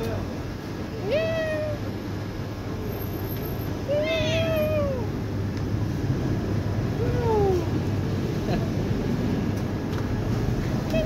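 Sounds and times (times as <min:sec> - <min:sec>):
cat meowing: 0:03.9 - 0:05.1.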